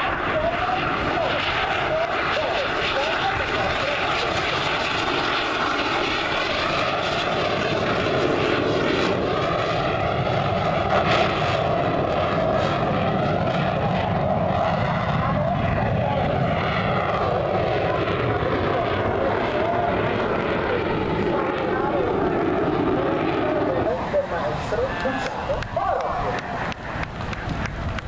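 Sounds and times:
jet engine passing low: 0.0s - 28.0s.

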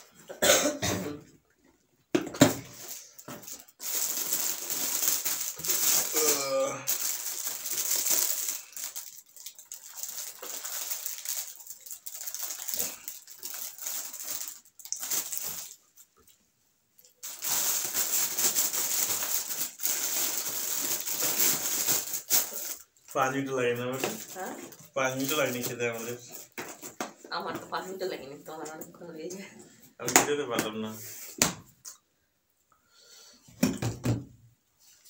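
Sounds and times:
paper tissue rustling: 2.6s - 16.1s, 17.2s - 27.0s.

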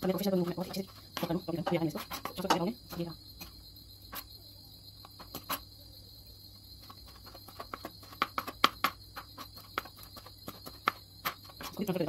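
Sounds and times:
knife chopping on plastic board: 6.9s - 11.8s.

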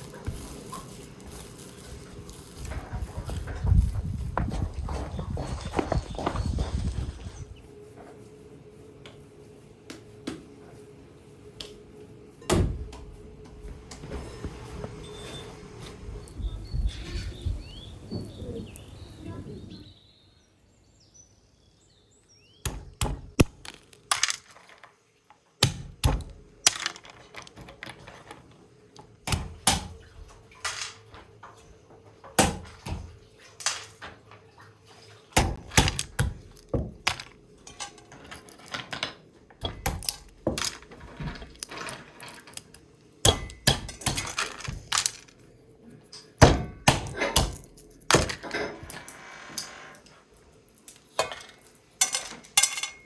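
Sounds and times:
hammer cracking walnuts on wood: 22.6s - 24.8s, 35.4s - 37.4s, 39.6s - 40.9s, 46.4s - 48.5s.

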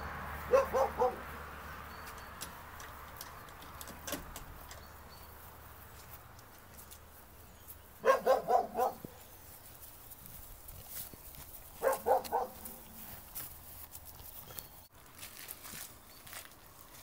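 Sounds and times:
dog barking: 0.5s - 1.3s, 8.0s - 9.1s, 11.8s - 12.8s.

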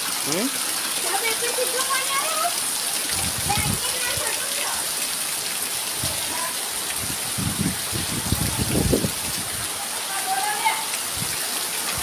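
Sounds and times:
heavy rain pouring: 0.0s - 12.0s
wind buffeting microphone: 3.1s - 4.4s, 6.9s - 9.8s.

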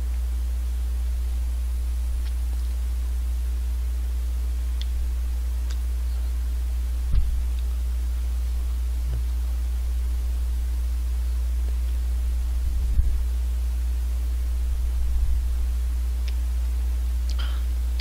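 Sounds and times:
steady low hum: 0.0s - 18.0s
soft low thumps: 7.0s - 7.7s, 8.8s - 10.0s, 11.7s - 13.3s.

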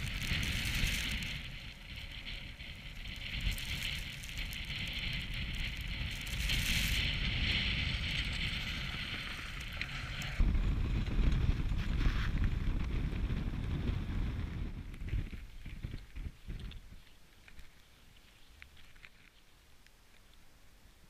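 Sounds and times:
wind buffeting microphone: 0.0s - 17.1s.

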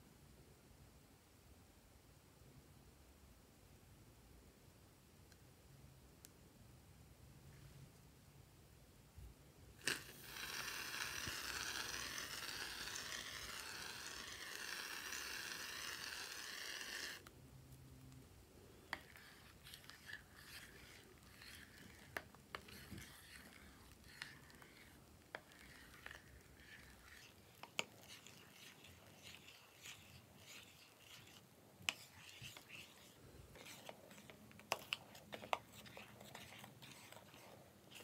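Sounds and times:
aerosol can spraying foam: 9.8s - 17.2s
spatula stirring foam: 9.8s - 17.3s, 18.6s - 38.0s.

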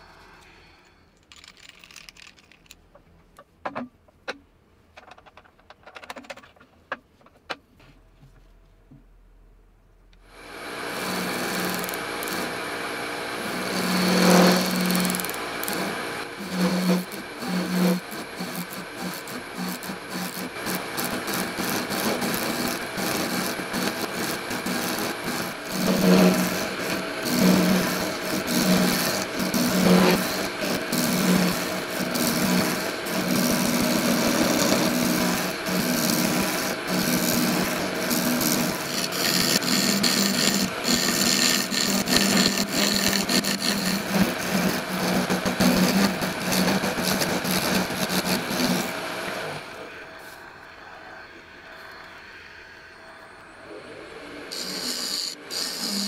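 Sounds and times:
lathe cutter rasping: 10.4s - 50.4s, 54.4s - 56.0s.

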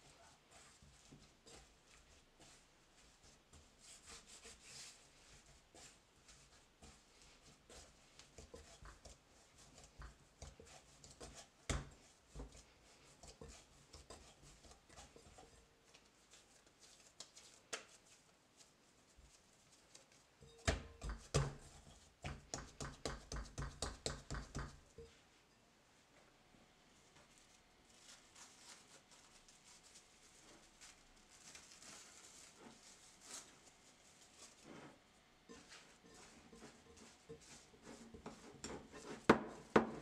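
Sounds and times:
dough squishing: 0.0s - 25.2s, 27.1s - 40.0s
hands slapping dough: 3.2s - 18.3s, 20.6s - 24.9s, 35.6s - 40.0s.

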